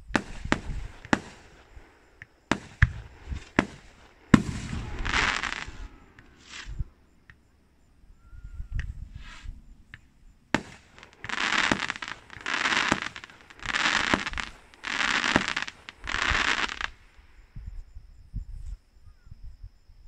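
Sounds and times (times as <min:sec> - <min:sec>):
crackling firework bursts: 0:00.0 - 0:07.8, 0:08.8 - 0:17.3
firework bang: 0:02.5 - 0:08.1, 0:08.8 - 0:17.0.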